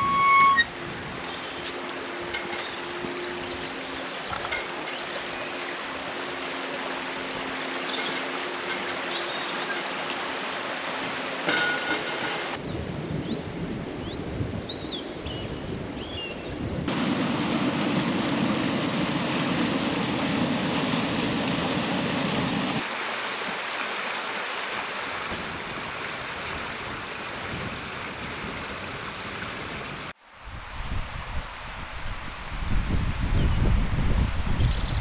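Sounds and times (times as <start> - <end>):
stream rushing over stones: 0.8 - 12.6, 16.9 - 30.2.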